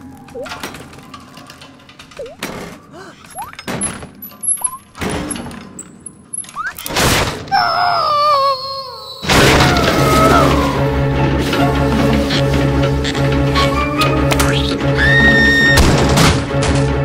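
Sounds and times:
crash of splintering wood: 9.3s - 10.5s
music with low notes: 10.6s - 15.0s.

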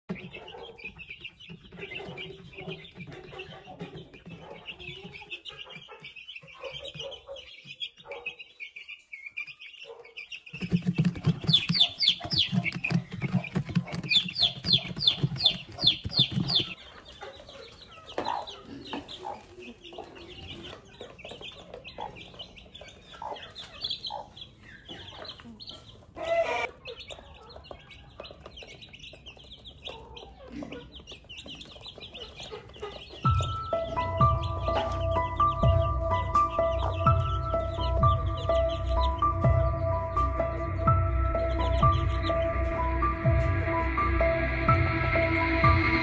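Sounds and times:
chicks peeping: 0.0s - 46.0s
beaks tapping on plastic trays: 10.5s - 16.8s, 27.2s - 33.6s.

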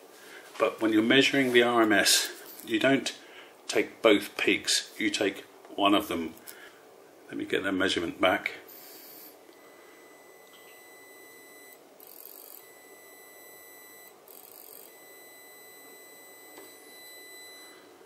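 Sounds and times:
high-pitched amplifier tone: 8.7s - 17.9s.

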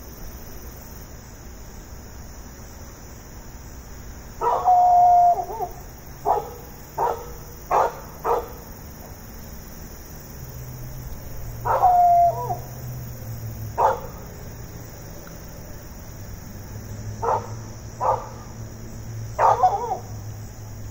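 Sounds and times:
insects chirring: 0.0s - 20.9s
dog bark-howling: 4.4s - 8.6s, 11.6s - 12.7s, 13.8s - 14.3s, 17.2s - 18.5s, 19.4s - 20.2s.

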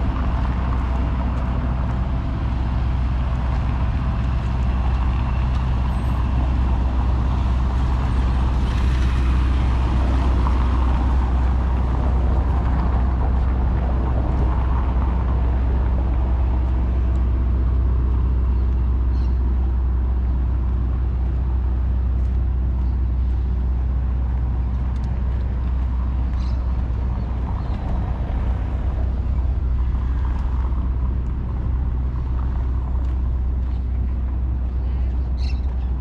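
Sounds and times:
road traffic rumble: 0.0s - 36.0s.

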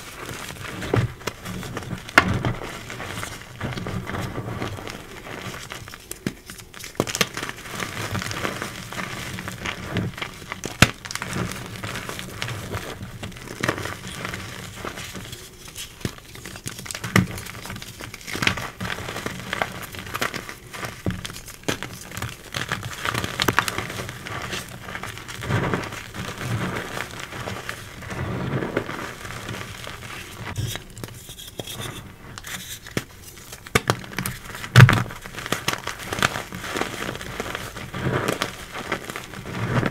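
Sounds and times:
chalk crunching between hands: 25.8s - 33.6s
chalk chunks snapping: 32.4s - 39.3s.

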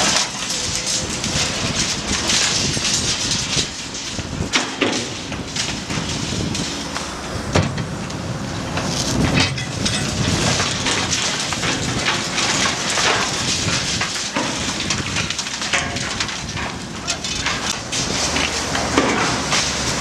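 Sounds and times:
concrete crunching: 0.0s - 20.0s
excavator running: 0.0s - 20.0s
falling debris clattering: 0.0s - 20.0s.

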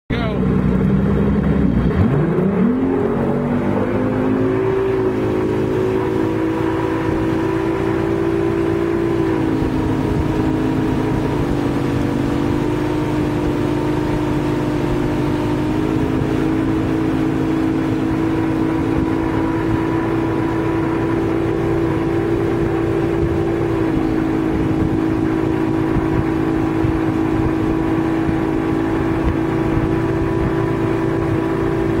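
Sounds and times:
boat engine accelerating: 0.1s - 32.0s
water rushing: 0.1s - 32.0s.

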